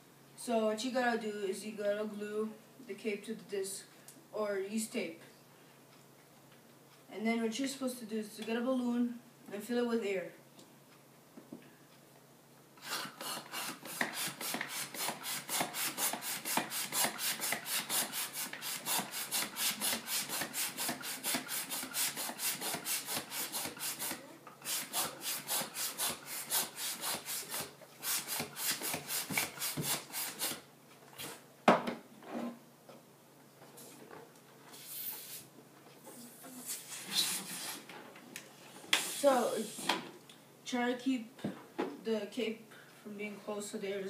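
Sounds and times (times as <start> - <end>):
balloon pump rasping air: 12.8 - 30.6, 34.7 - 35.5, 36.1 - 37.9, 38.8 - 40.0.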